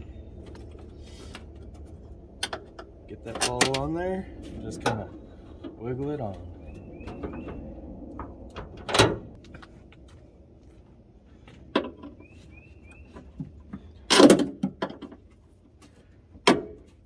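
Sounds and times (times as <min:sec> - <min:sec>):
metal clicks and clunks: 0:01.6 - 0:04.0, 0:07.0 - 0:09.4, 0:11.7 - 0:12.2, 0:13.2 - 0:15.3, 0:16.4 - 0:17.0.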